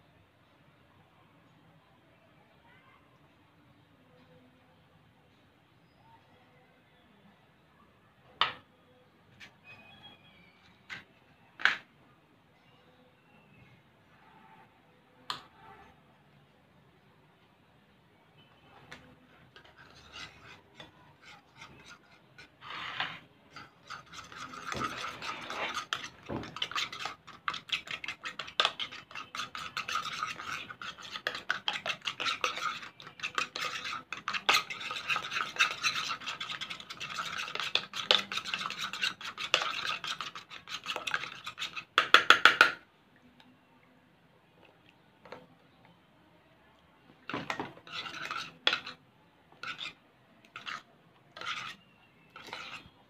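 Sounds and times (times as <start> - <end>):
metal spoon stirring glue in bowl: 18.4 - 42.8, 47.2 - 53.0.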